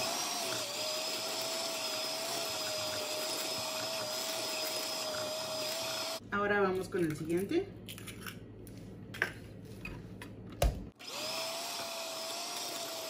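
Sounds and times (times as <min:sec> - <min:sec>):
electric hand mixer whining: 0:00.0 - 0:06.2, 0:11.0 - 0:13.0.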